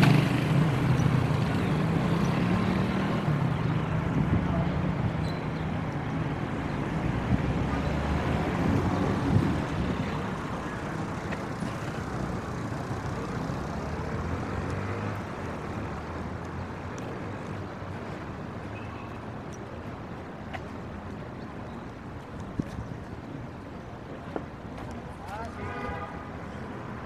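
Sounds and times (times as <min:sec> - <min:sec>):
low traffic rumble: 0:00.0 - 0:27.0.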